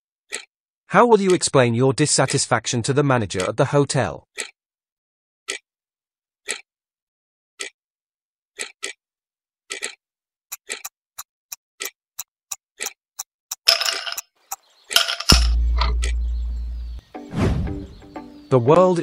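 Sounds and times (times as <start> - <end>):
clock ticking: 15.6 - 16.4.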